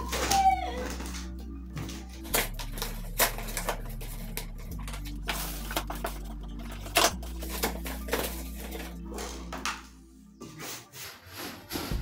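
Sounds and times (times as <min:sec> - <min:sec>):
cardboard being handled: 0:01.8 - 0:09.9.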